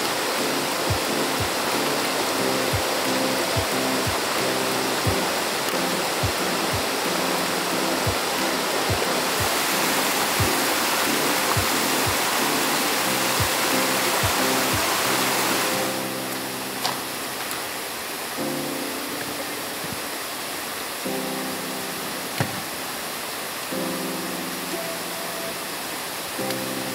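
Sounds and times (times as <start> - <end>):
flowing water: 0.0 - 26.9
music with sustained chords: 0.0 - 26.9.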